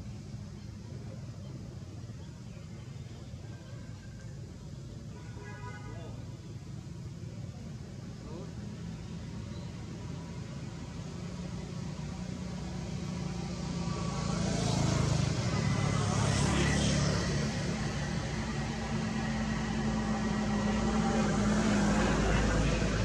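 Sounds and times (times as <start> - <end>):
motor engine humming: 17.5 - 23.0.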